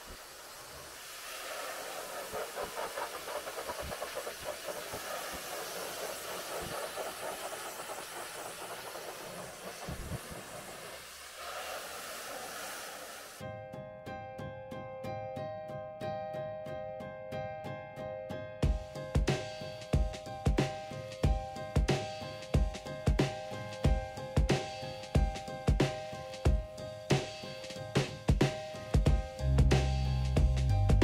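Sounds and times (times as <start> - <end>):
pressure washer spraying: 0.0 - 13.4
music: 13.4 - 31.0.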